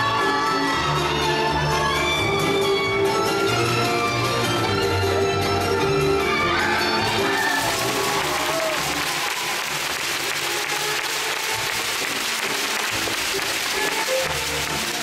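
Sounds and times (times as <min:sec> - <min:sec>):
audience applauding: 0:07.0 - 0:15.0.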